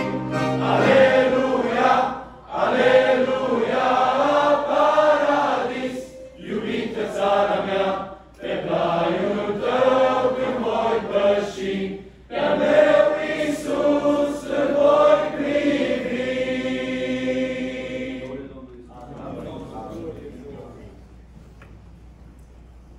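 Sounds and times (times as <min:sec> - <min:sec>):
accordion accompaniment: 0:00.0 - 0:01.8
men's choir singing a hymn: 0:00.0 - 0:20.6.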